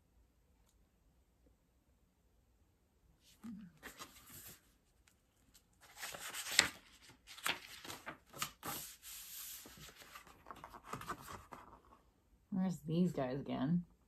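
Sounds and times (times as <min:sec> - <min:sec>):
paper pages rustling and flipping: 0:03.5 - 0:12.0.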